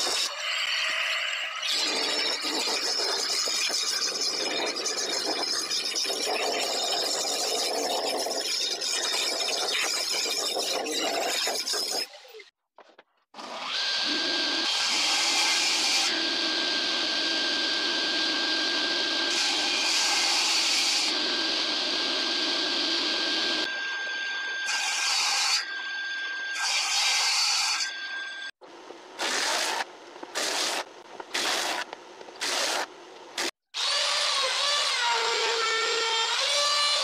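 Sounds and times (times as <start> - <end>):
table saw whining: 13.4 - 28.6, 33.7 - 37.0.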